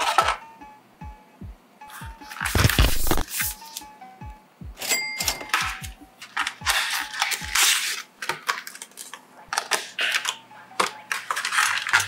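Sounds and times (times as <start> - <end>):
packaging rustling and scraping: 2.2 - 3.8, 6.2 - 10.4, 11.1 - 12.0.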